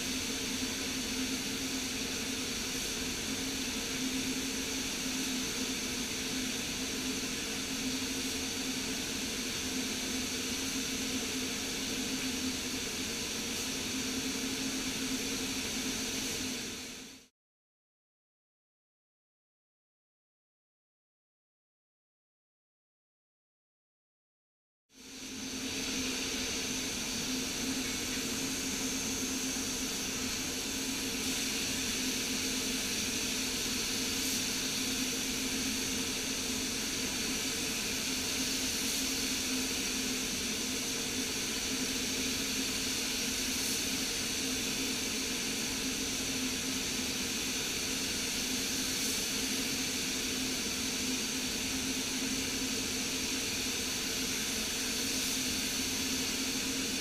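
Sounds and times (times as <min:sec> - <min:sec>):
air handling hum and hiss: 0:00.0 - 0:17.3, 0:25.0 - 0:57.0
paint spray gun hissing: 0:25.0 - 0:57.0.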